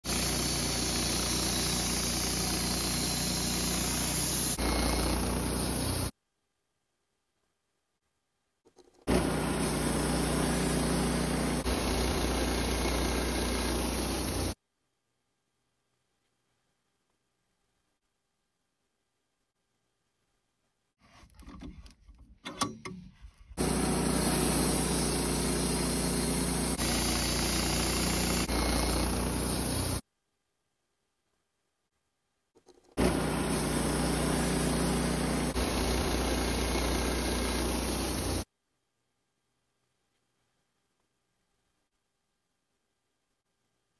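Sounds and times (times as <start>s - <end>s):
saw blade cutting log: 0.0s - 6.1s, 9.1s - 14.6s, 23.6s - 30.0s, 32.9s - 38.5s
sawmill engine drone: 0.0s - 6.1s, 9.1s - 14.6s, 23.6s - 30.0s, 33.0s - 38.5s.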